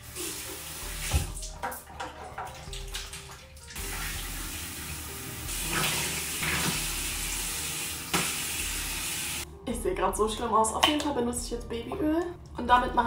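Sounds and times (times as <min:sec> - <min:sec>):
water running from a tap: 0:00.0 - 0:09.5
hands splashing water: 0:01.0 - 0:04.3.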